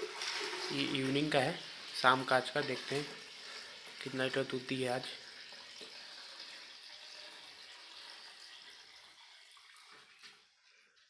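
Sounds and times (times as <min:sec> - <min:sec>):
milk pouring into metal pail: 0:00.0 - 0:11.0.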